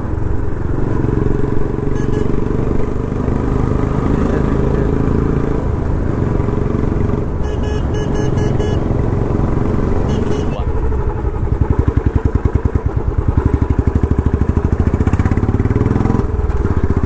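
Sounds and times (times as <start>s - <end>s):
motorcycle engine running: 0.0s - 17.0s
short high beeps: 2.0s - 2.4s, 7.4s - 8.9s, 10.0s - 10.7s.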